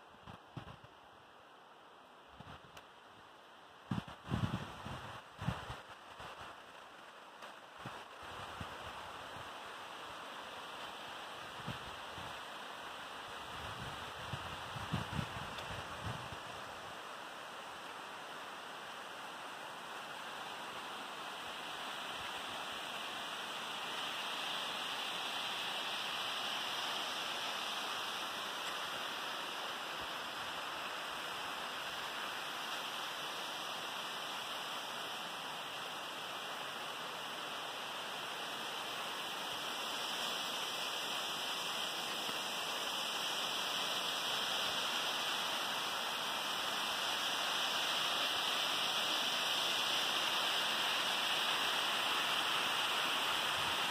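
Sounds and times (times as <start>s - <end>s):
waterfall rushing: 17.2s - 53.9s.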